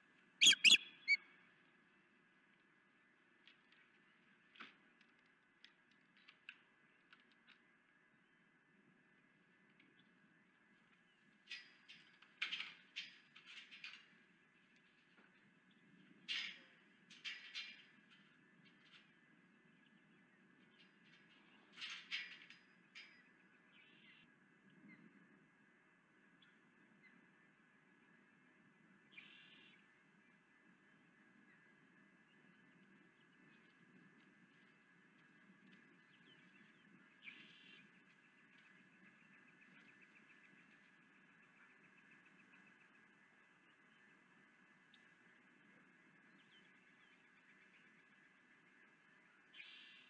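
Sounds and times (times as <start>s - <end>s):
osprey chirping: 0.4s - 1.2s
faint hiss and hum: 22.5s - 50.0s.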